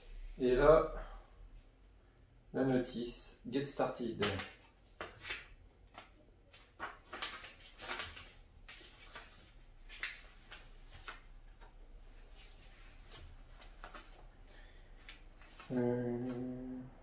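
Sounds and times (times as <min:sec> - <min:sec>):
paper pages rustling: 0:04.1 - 0:14.3, 0:14.9 - 0:16.4.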